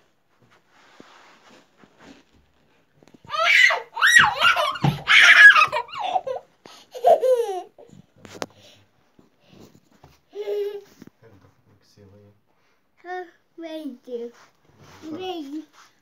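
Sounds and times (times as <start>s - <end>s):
young child laughing: 3.6s - 7.9s.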